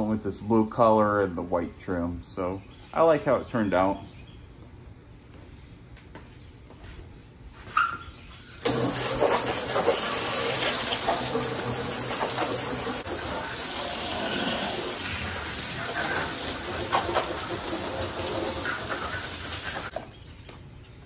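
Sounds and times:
water spraying onto window glass: 0:08.6 - 0:20.0.

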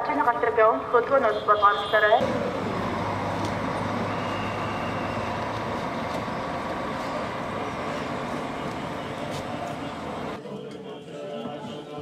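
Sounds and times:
vehicle rumble with low hum: 0:02.2 - 0:10.4.

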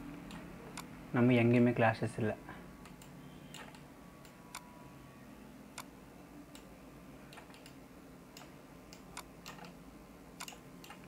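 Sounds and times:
low steady hum: 0:00.0 - 0:11.0
computer mouse clicks: 0:02.8 - 0:04.7, 0:07.3 - 0:09.8, 0:10.4 - 0:11.0.

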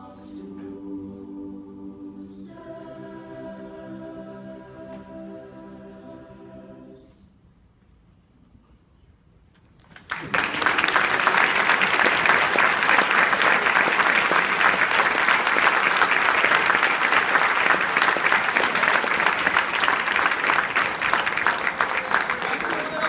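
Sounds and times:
audience applause: 0:09.9 - 0:23.0.

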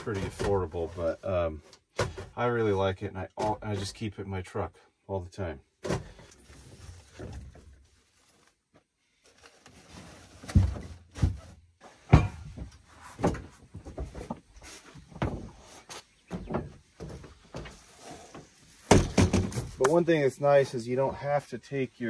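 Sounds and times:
knocks and thumps in truck bed: 0:10.5 - 0:14.4, 0:15.1 - 0:15.7, 0:18.8 - 0:19.8.

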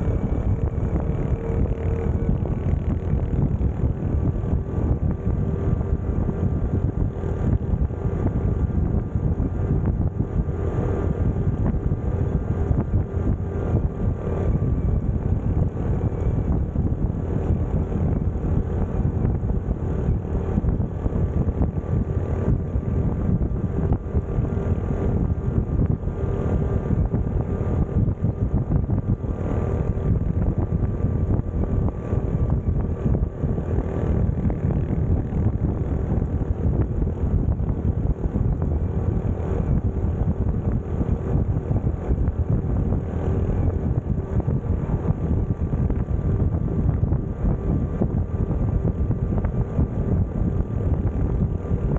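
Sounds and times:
motorcycle engine running: 0:00.0 - 0:51.9
wind rushing over microphone: 0:00.0 - 0:51.9.

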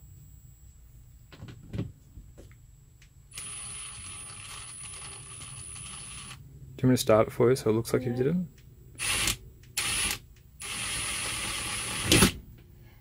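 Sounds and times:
cordless drill motor running: 0:09.0 - 0:12.2.

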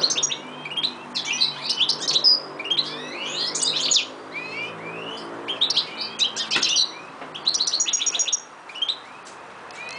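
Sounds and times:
goldfinch twittering song: 0:00.0 - 0:09.9.

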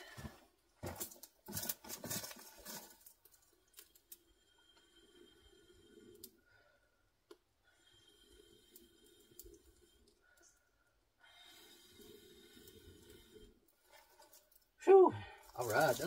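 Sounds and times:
burning sticks crackling: 0:15.4 - 0:16.0.

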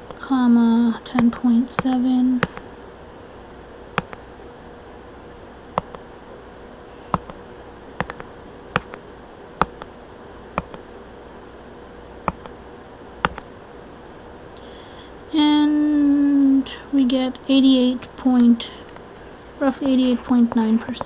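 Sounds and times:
computer mouse clicking: 0:04.0 - 0:04.2, 0:05.8 - 0:06.0, 0:07.1 - 0:07.4, 0:08.0 - 0:09.0, 0:09.6 - 0:09.9, 0:10.6 - 0:10.8, 0:12.2 - 0:12.6, 0:13.2 - 0:13.5.

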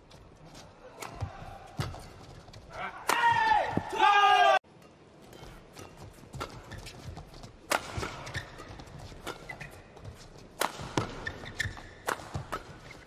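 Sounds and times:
rackets striking shuttlecock: 0:04.9 - 0:13.0.

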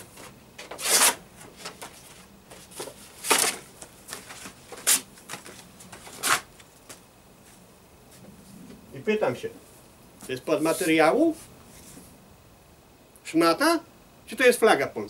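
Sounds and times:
paper rustling: 0:00.0 - 0:07.0
paper tearing: 0:00.6 - 0:02.1, 0:02.8 - 0:05.1, 0:06.0 - 0:06.5.

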